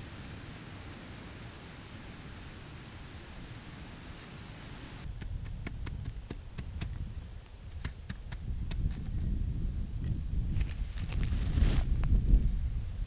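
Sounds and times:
steady hiss: 0.0s - 7.9s.

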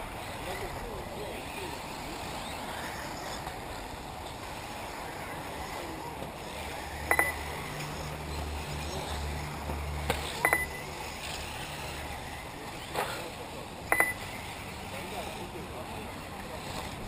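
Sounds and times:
rc car motors whining: 0.0s - 17.0s
short high beep: 13.9s - 14.2s.

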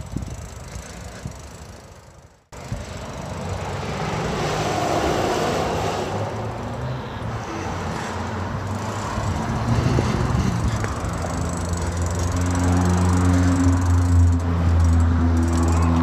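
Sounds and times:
rushing wind and road noise: 0.0s - 16.0s
motorcycle engine running: 8.7s - 16.0s.

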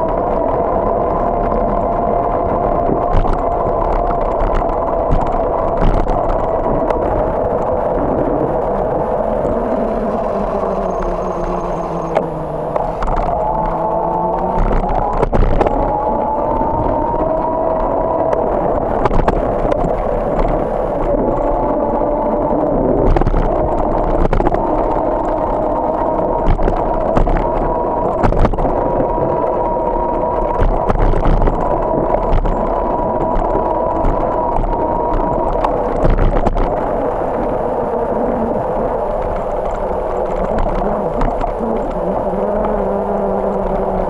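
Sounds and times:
road and wind noise: 0.0s - 44.0s
steady hum: 0.0s - 44.0s.

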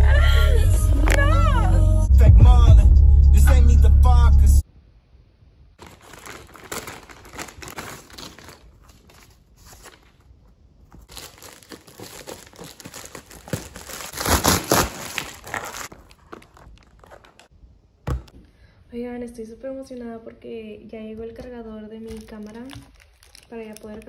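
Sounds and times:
scissors cutting plastic: 5.8s - 10.3s, 10.9s - 17.5s, 22.0s - 24.0s
plastic bags crinkling: 5.8s - 17.5s, 22.0s - 24.0s.

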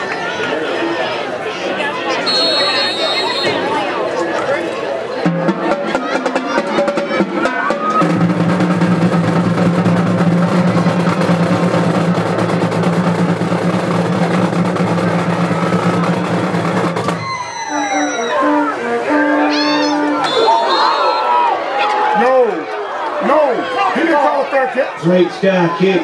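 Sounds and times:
snare drum roll: 5.2s - 17.4s
marching band low chord: 5.2s - 20.5s.

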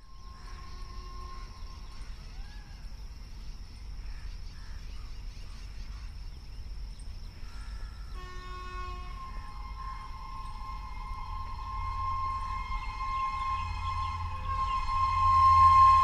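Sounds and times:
open-air rumble: 0.0s - 16.0s
steady high-pitched drone: 7.8s - 16.0s
train approaching: 7.8s - 16.0s
train horn chord: 7.9s - 16.0s
chirps: 8.8s - 16.0s.

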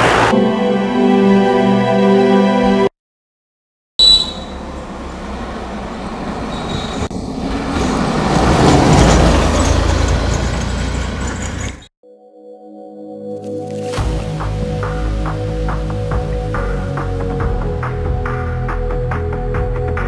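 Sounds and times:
van driving past: 4.5s - 11.8s.

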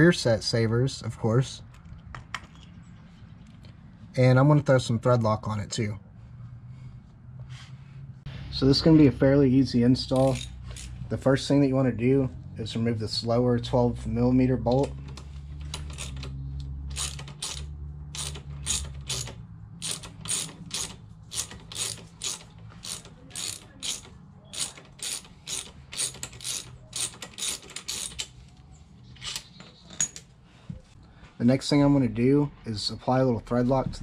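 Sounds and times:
socket ratchet clicking: 15.1s - 28.4s.

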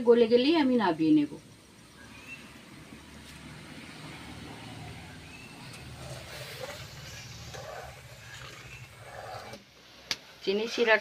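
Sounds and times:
syrup boiling: 5.6s - 10.0s
bubbling crackle: 5.7s - 9.6s.

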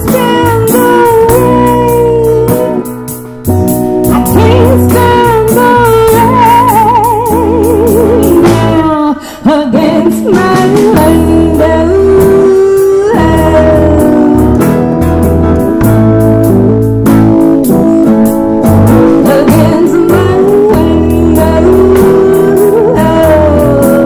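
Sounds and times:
woman singing: 0.0s - 2.9s, 4.1s - 14.9s, 18.9s - 24.0s
live soul band playing: 0.0s - 24.0s.

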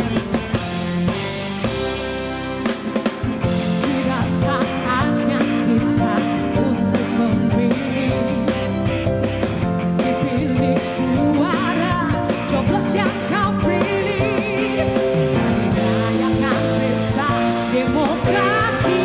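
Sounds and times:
instrumental accompaniment with beat: 0.0s - 19.0s
woman singing: 3.6s - 9.0s, 9.8s - 19.0s.

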